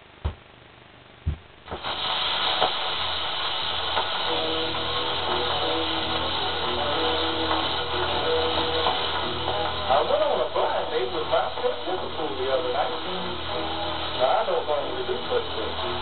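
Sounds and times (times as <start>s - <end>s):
old recording hiss: 0.0s - 16.0s
quiet music of held notes: 4.1s - 16.0s.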